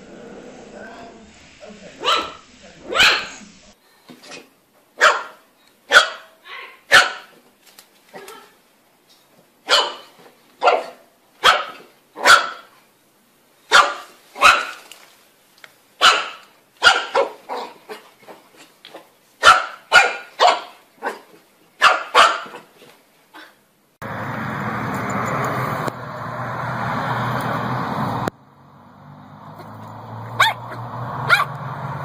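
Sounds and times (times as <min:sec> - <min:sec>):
puppy yapping: 0:02.0 - 0:03.4, 0:05.0 - 0:07.3, 0:09.7 - 0:12.7, 0:13.7 - 0:14.8, 0:16.0 - 0:18.1, 0:19.4 - 0:22.7, 0:29.6 - 0:31.6.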